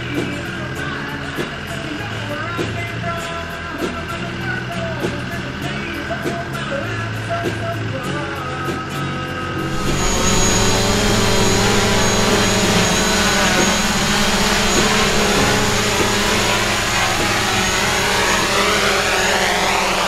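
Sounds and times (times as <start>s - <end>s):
drone propellers whining: 9.6s - 20.0s.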